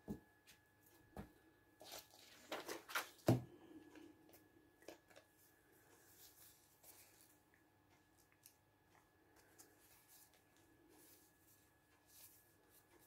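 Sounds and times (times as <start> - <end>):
paper rustling: 1.8 - 3.4.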